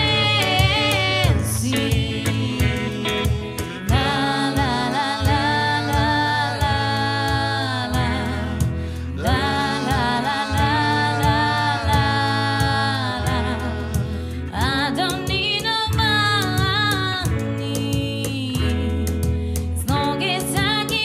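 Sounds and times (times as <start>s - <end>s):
band playing steady beat: 0.0s - 14.5s.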